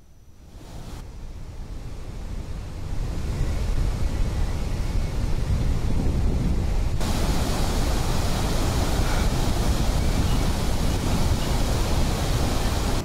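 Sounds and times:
water rushing through spillway: 7.0 - 13.0.

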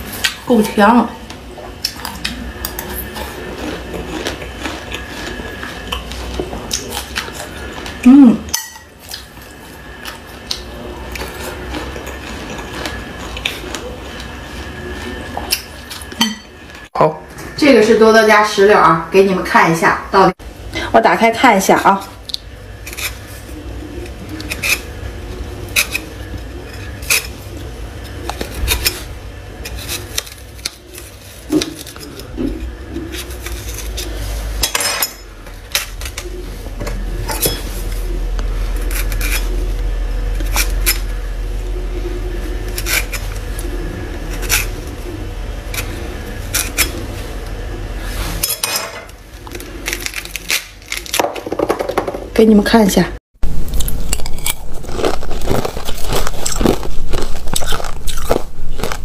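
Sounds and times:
knife clicking and scraping peel: 38.8 - 39.6.

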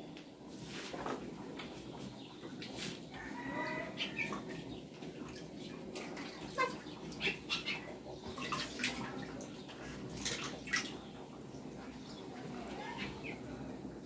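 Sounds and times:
water splashing in steel bucket: 8.3 - 11.1.

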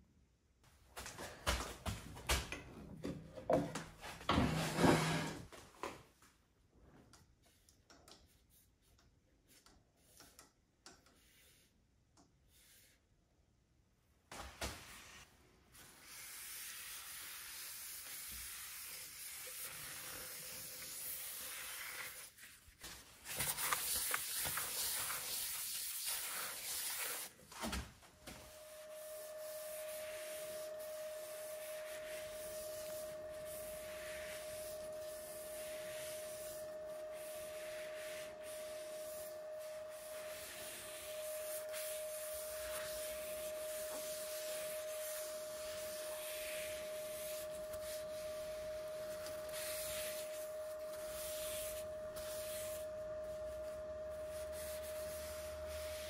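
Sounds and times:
paper towel rubbing on wood: 28.7 - 52.9.

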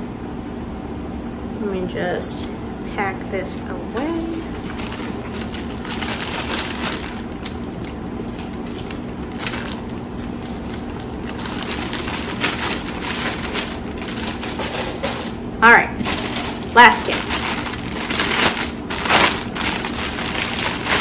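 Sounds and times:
plastic packaging crinkling: 4.0 - 15.4, 16.0 - 21.0.

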